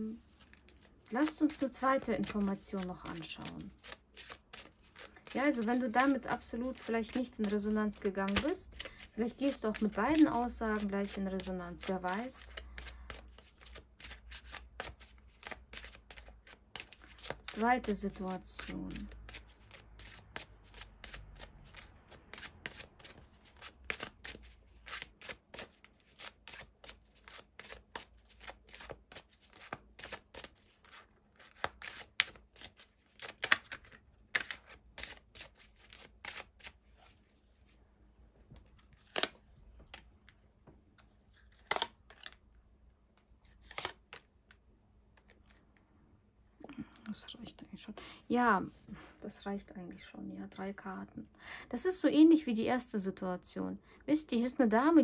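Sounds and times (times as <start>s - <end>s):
cards being shuffled: 0.2s - 37.8s, 38.5s - 40.4s, 41.0s - 42.4s, 43.1s - 45.6s.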